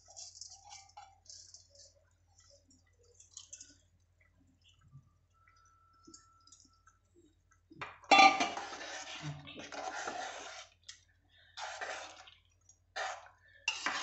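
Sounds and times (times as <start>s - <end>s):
metal spoon scraping pot: 8.1s - 10.8s, 11.6s - 12.3s, 13.0s - 14.0s.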